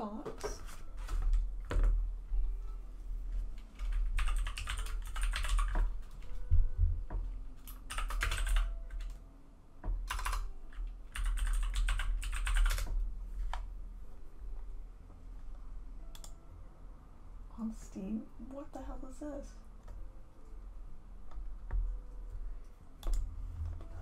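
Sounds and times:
typing on computer keyboard: 3.8s - 6.3s, 7.6s - 9.2s, 10.0s - 13.0s.

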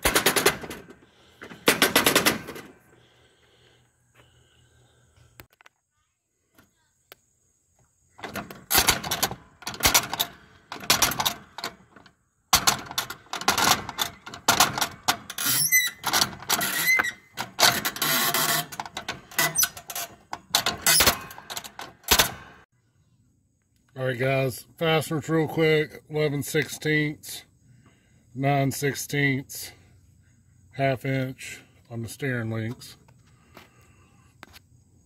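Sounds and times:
short squeaks: 15.3s - 20.2s.

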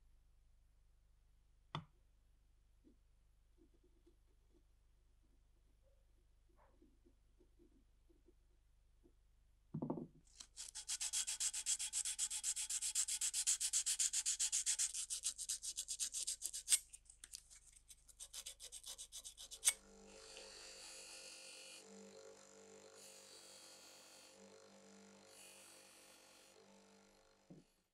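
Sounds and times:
sandpaper rasping on brass: 10.4s - 16.8s, 18.1s - 19.8s.

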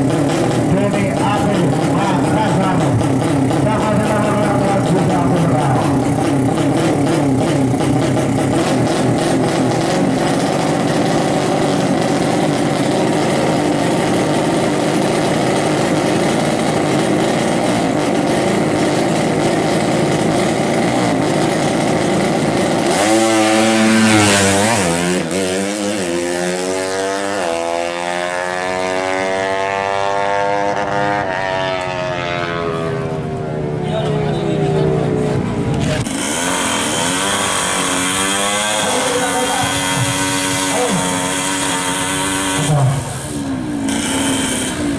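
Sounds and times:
motorcycle engine revving: 0.0s - 44.9s.

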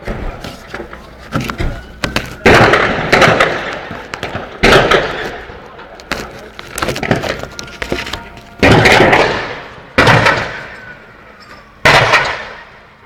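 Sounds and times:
crackling pops: 0.4s - 10.6s
loud explosive bangs echoing: 2.4s - 5.6s, 8.6s - 10.8s, 11.8s - 12.7s.

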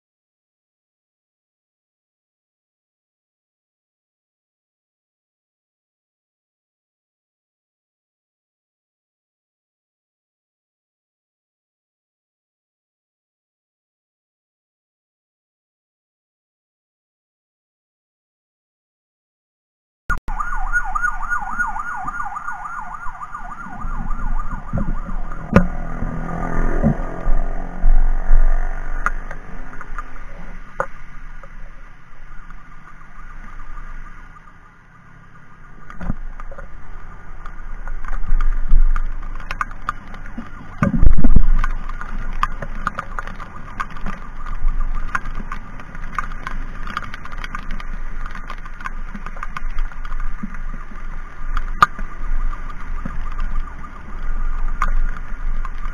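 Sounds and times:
emergency siren warbling: 20.2s - 30.5s
wind rumbling on microphone: 20.3s - 55.9s.

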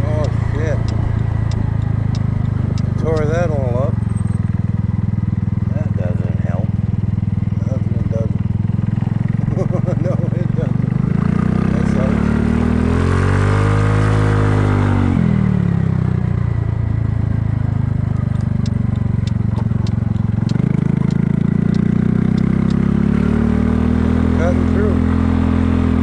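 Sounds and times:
scooter engine running: 0.0s - 13.0s, 14.4s - 26.0s
faint light ticks: 18.1s - 22.8s.

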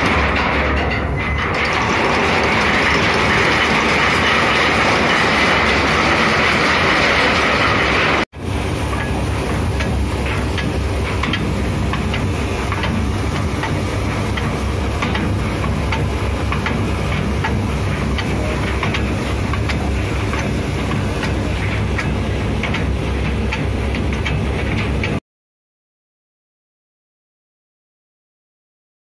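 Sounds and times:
low machinery drone: 0.0s - 25.2s.

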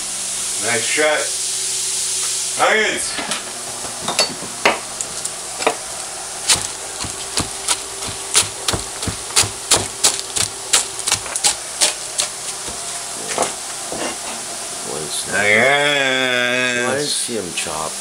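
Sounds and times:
knife chopping on cutting board: 6.5s - 14.2s.

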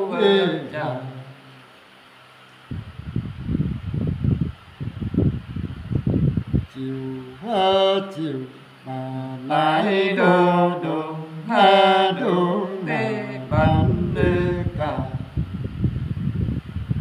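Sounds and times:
men singing unaccompanied: 0.0s - 1.6s, 6.8s - 15.4s
low rumbling noise: 2.7s - 9.6s, 10.3s - 17.0s.

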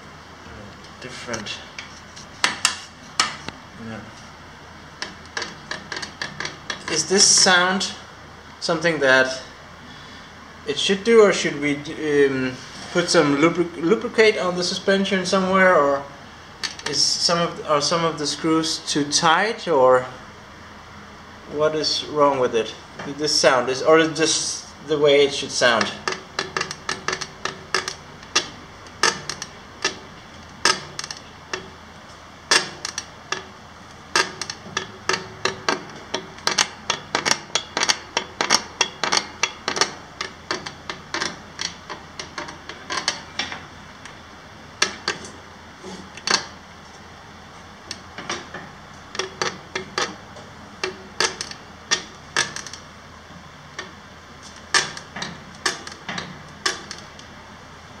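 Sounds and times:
trailer suspension screeching: 24.2s - 57.6s.

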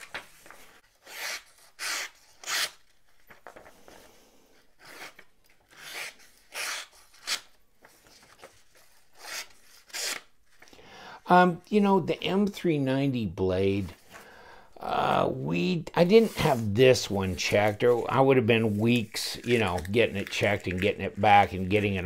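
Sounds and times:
knife slicing paper: 16.1s - 22.0s.

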